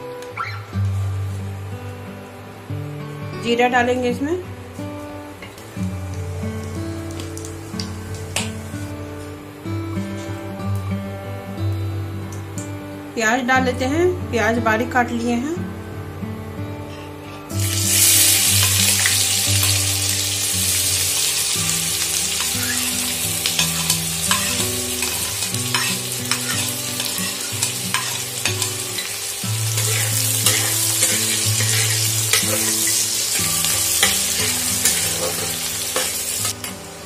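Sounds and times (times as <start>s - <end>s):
onions sizzling in hot oil: 4.8s - 9.4s, 17.5s - 37.0s
spatula scraping pan: 22.3s - 36.6s.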